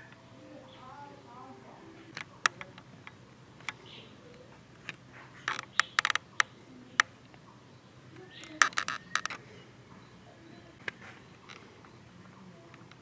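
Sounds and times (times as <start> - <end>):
sharp clicks: 4.8 - 7.4, 8.2 - 9.4.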